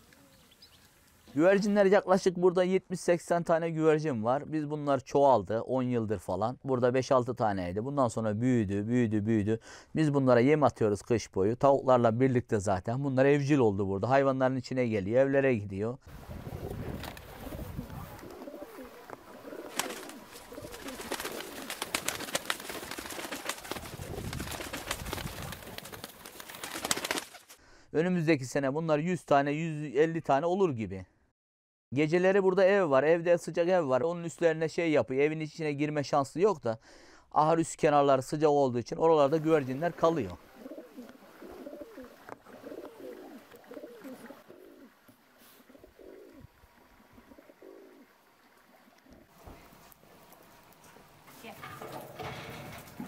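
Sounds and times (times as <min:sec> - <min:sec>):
pigeons cooing: 0:16.4 - 0:26.0, 0:40.4 - 0:48.1.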